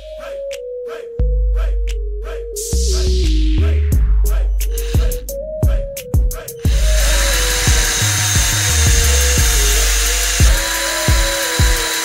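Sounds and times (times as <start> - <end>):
hip-hop music with beat: 0.0 - 12.0
drill boring into wood: 6.7 - 12.0.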